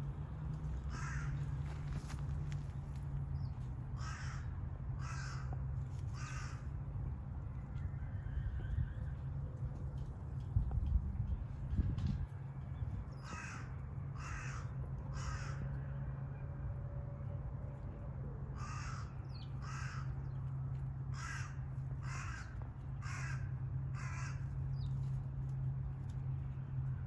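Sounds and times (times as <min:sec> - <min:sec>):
crow cawing: 0:00.9 - 0:01.6, 0:03.9 - 0:06.7, 0:13.2 - 0:15.8, 0:18.6 - 0:20.2, 0:21.1 - 0:24.5.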